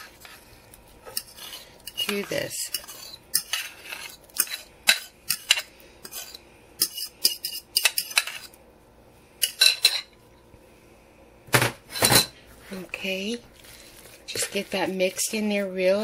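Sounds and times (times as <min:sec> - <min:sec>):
spoon scraping and knocking bowl: 0:01.1 - 0:08.6.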